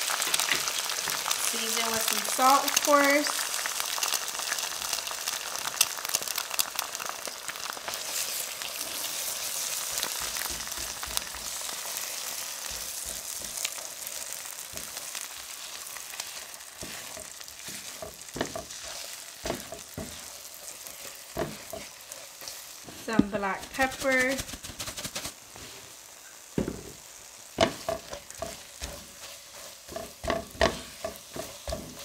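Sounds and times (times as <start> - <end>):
eggs sizzling in butter: 0.0 - 32.0
utensil knocking against pan: 29.9 - 32.0.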